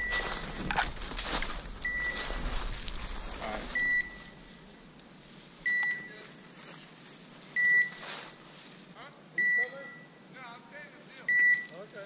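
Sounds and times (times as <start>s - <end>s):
beeper collar high beeps: 0.0s - 0.5s, 1.8s - 2.3s, 3.7s - 4.4s, 5.6s - 6.2s, 7.6s - 8.0s, 9.4s - 10.2s, 11.3s - 11.8s.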